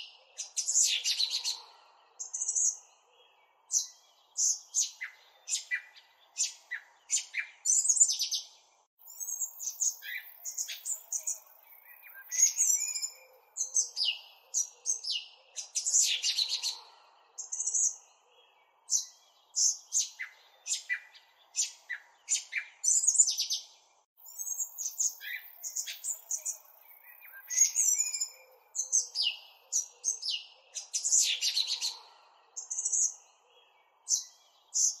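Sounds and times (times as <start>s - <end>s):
songbirds chirping and trilling: 0.0s - 35.0s.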